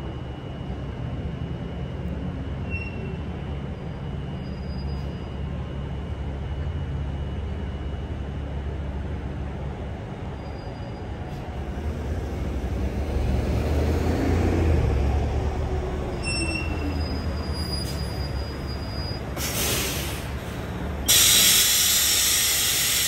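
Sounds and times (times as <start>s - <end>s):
diesel coach engine rumble: 0.0s - 23.0s
brake squeal: 2.6s - 5.4s, 10.4s - 11.5s, 16.1s - 20.3s
air-brake hiss: 19.4s - 23.0s.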